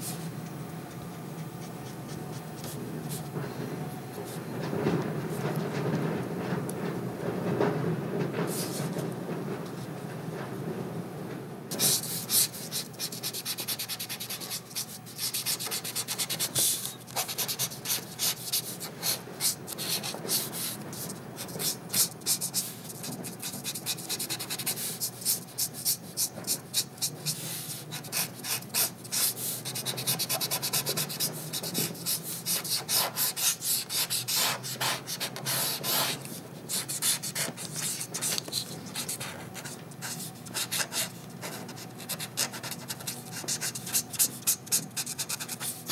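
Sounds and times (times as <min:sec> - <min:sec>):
pen scratching on paper: 0:01.6 - 0:02.8, 0:11.7 - 0:45.9.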